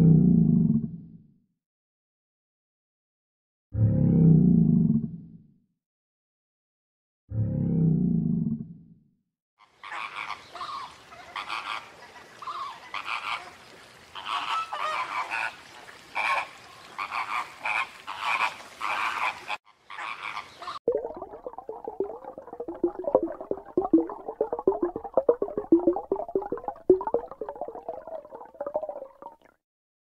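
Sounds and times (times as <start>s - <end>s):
quick ticking sounds: 20.9s - 29.4s.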